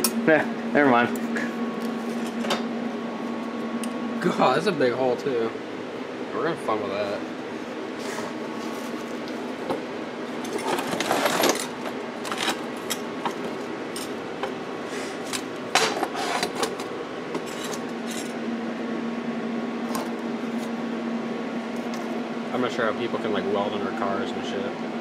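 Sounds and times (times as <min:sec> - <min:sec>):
steady background hum: 0:00.0 - 0:25.0.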